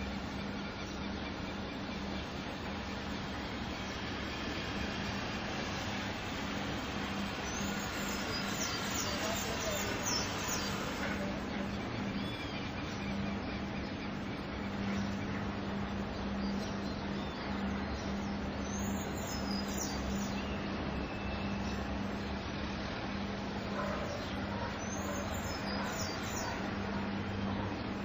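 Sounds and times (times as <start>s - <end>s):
ship engines rumbling: 0.0s - 19.1s
steady low hum: 0.0s - 28.0s.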